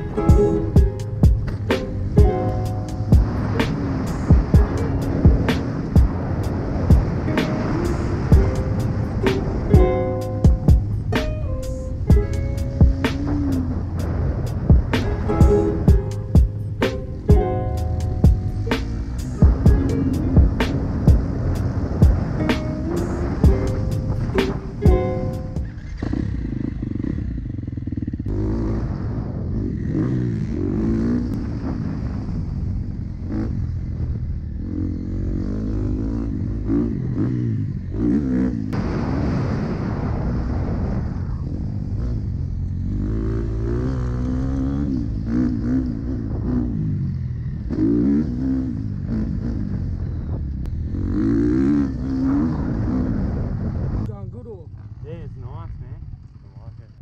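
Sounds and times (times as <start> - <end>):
dirt bike engine revving: 0.0 - 39.0, 41.7 - 54.0.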